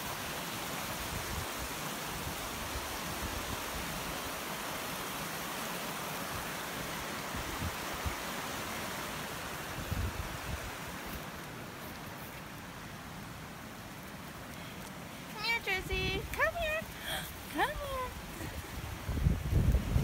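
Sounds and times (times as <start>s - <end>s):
water rushing over rocks: 0.0s - 20.0s.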